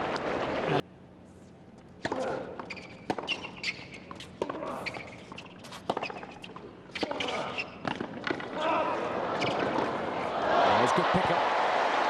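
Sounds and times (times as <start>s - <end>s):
racket hitting tennis ball: 2.0s - 4.8s
ball bouncing on hard court: 2.0s - 7.2s.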